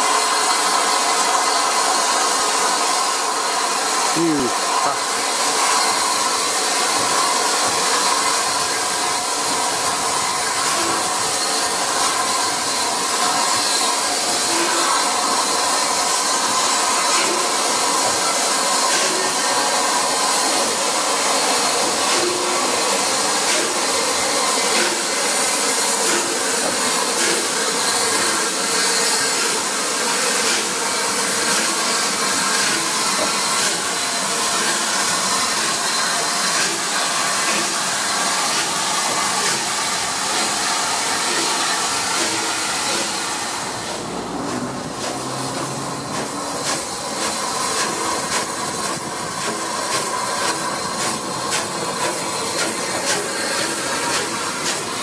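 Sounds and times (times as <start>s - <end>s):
steam hissing: 0.0s - 55.0s
soft locomotive exhaust beats: 42.1s - 55.0s.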